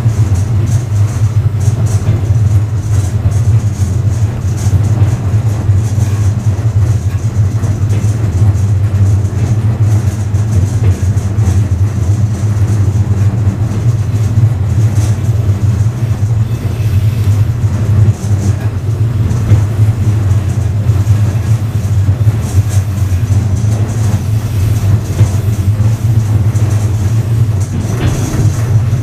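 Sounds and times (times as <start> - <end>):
train wheels running on rails: 0.0 - 29.0
car body shaking: 27.1 - 29.0.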